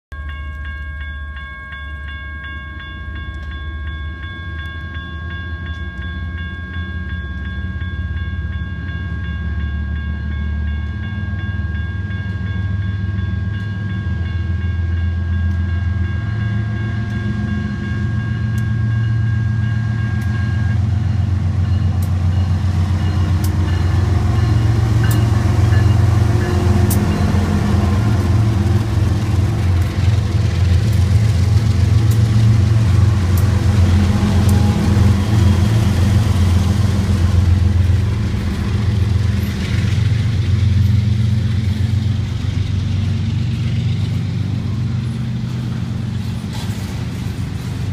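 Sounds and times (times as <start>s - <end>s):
railroad crossing bell ringing: 0.1s - 47.9s
train rumble: 0.1s - 47.9s
train wheels clicking over rails: 19.8s - 47.9s.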